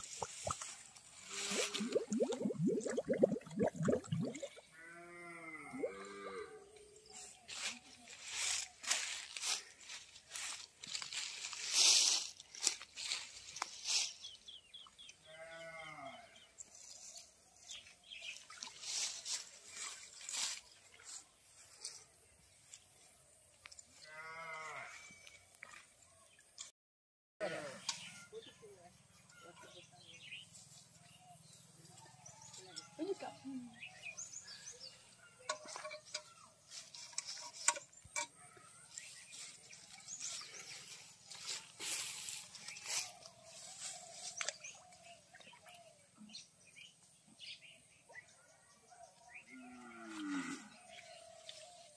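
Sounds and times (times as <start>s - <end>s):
rustling of grass and leaves: 0.0s - 2.4s, 7.0s - 14.8s, 16.6s - 24.9s, 30.4s - 38.2s, 38.8s - 45.8s, 49.8s - 51.9s
goat or sheep bleat: 15.3s - 16.3s, 24.0s - 25.1s
small birds chirping: 38.8s - 48.3s.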